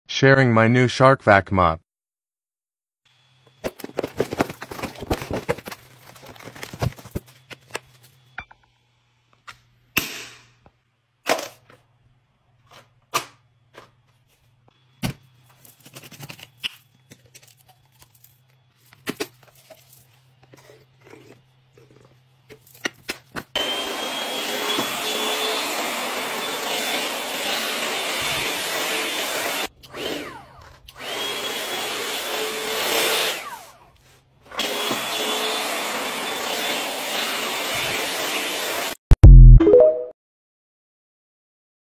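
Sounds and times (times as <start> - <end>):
vacuum motor running: 23.6 - 33.8, 34.6 - 38.9.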